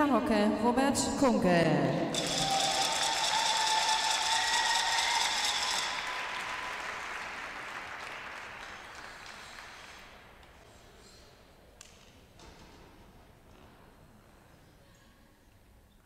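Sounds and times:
audience applauding: 2.1s - 10.4s.

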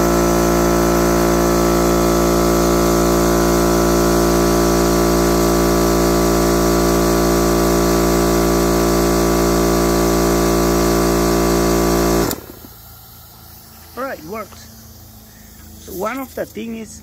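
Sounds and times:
compressor shutoff click: 0.0s - 16.2s
air compressor running: 0.0s - 17.0s.

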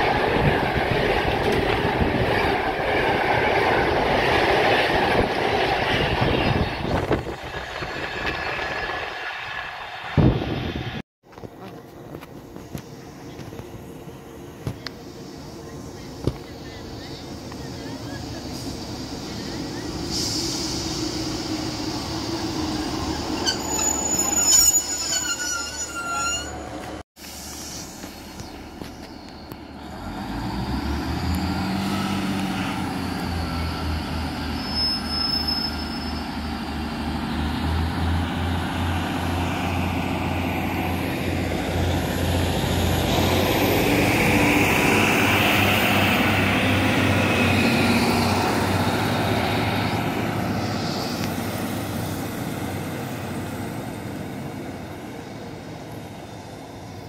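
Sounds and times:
train brakes squealing: 18.1s - 29.4s, 31.6s - 36.7s.

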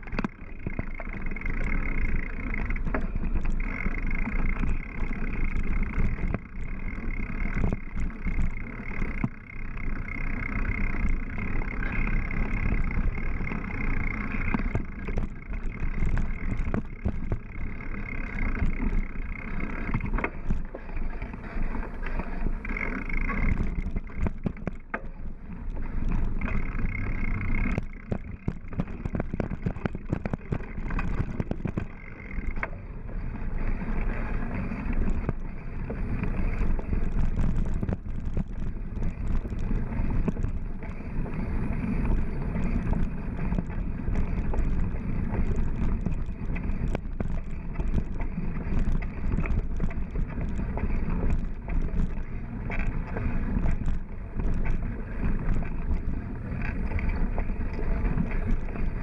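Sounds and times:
bike clicks and rattles: 0.0s - 59.0s
wind rumble on microphone: 0.0s - 59.0s.

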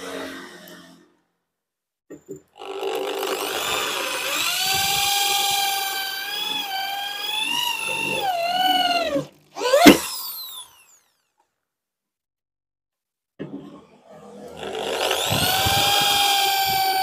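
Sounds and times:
hammer drill motor whining: 2.4s - 11.3s, 14.5s - 17.0s.

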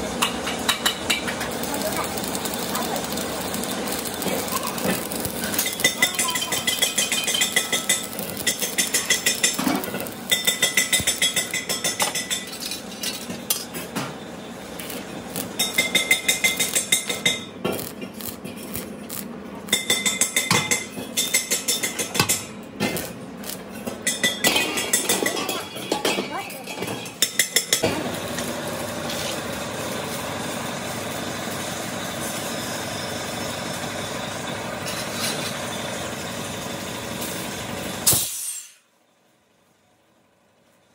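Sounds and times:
stick welding crackling: 0.2s - 13.8s, 14.6s - 22.2s, 22.8s - 24.2s.

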